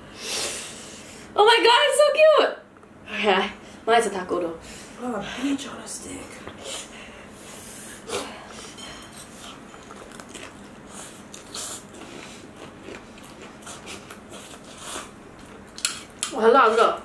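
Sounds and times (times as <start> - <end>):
people slurping noodles: 6.6 - 9.6, 10.9 - 15.1.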